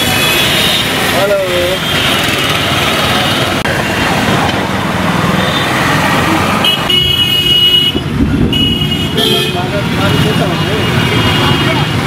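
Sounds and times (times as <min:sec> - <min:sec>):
traffic on wet street: 0:00.0 - 0:12.0
vehicle horn: 0:06.6 - 0:10.4.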